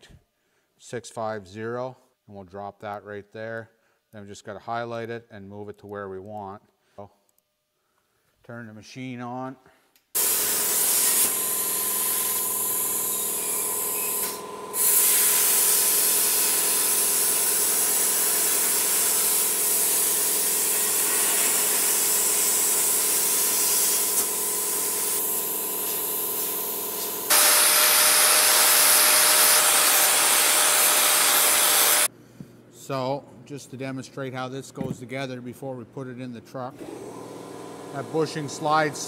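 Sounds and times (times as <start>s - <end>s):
angle grinder running: 10.2s - 32.1s
plasma arc hissing: 10.2s - 32.1s
plasma cutter hum: 10.2s - 32.1s.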